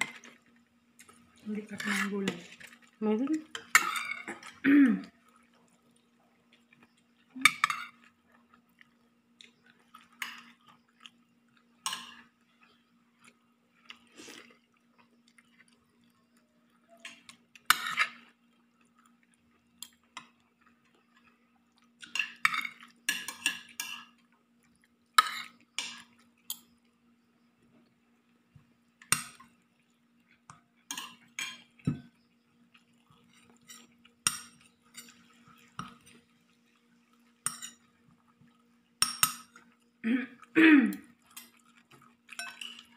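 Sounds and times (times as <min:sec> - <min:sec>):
utensil clinking on a plate: 0:39.0 - 0:39.6, 0:42.3 - 0:42.9.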